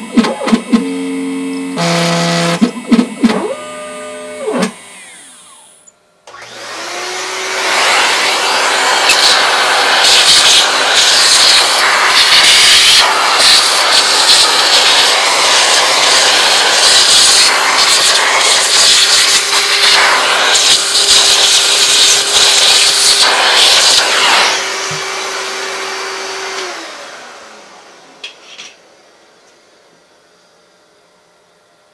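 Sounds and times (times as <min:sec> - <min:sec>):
vacuum motor hum: 0:00.0 - 0:31.8
vacuum hose sucking up plastic chips: 0:06.3 - 0:27.0.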